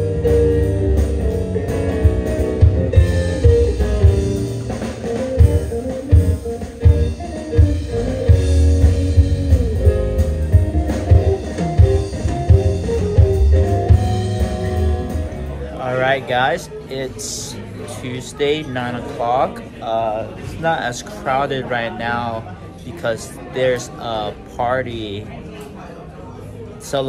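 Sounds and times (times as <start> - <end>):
bass line: 0.0 - 16.2
drum kit: 0.0 - 16.2
electric guitar playing: 0.0 - 16.2.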